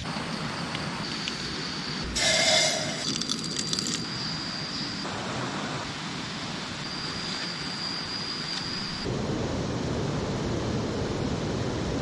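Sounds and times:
forest ambience hiss: 0:00.0 - 0:09.4
high insect drone: 0:00.0 - 0:09.4
coffee beans clattering into cup: 0:02.9 - 0:04.0.

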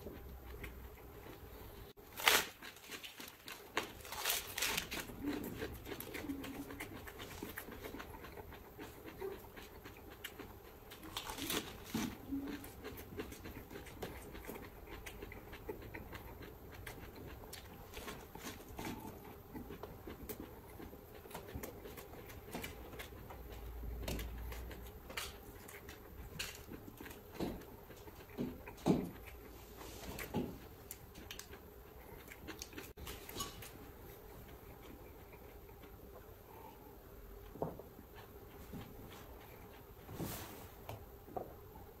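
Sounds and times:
person chewing lettuce: 0:00.0 - 0:36.7
lettuce leaves crackling: 0:02.1 - 0:05.2
breathing: 0:36.4 - 0:37.0.

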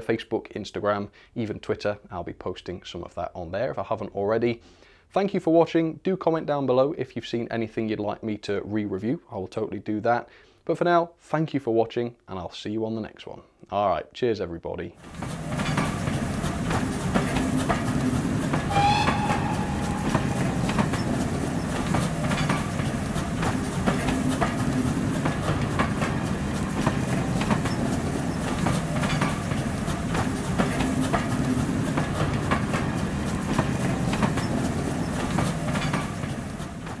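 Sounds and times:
train rumbling on track: 0:15.0 - 0:37.0
wheels clicking over rail joints: 0:15.0 - 0:37.0
train whistle: 0:18.7 - 0:21.5.

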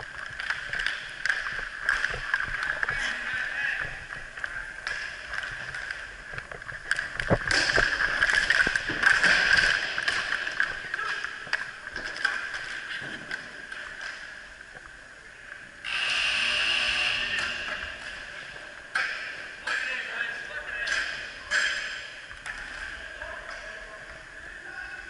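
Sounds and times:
hockey sticks and puck clacking: 0:00.0 - 0:14.4, 0:17.1 - 0:25.0
skate wheels rolling on floor: 0:00.0 - 0:14.9.

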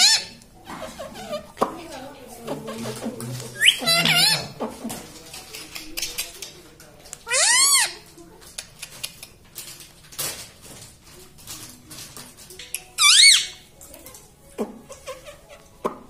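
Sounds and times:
parakeet chirping and calling: 0:00.0 - 0:01.5, 0:03.6 - 0:04.6, 0:07.3 - 0:08.0, 0:13.0 - 0:13.6.

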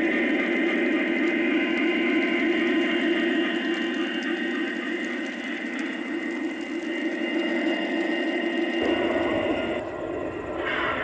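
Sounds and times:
diesel engine sound through small speaker: 0:00.0 - 0:11.0
deep rumble: 0:08.7 - 0:11.0.

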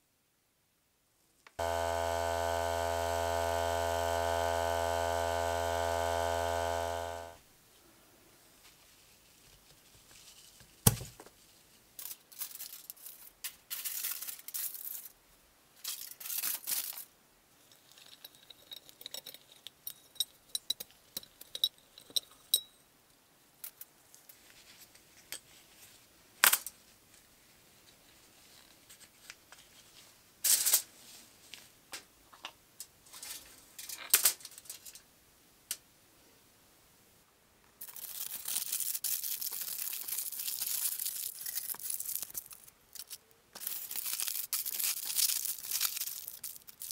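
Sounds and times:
aluminium foil crinkling: 0:12.0 - 0:15.2, 0:15.8 - 0:17.1, 0:37.8 - 0:46.9.

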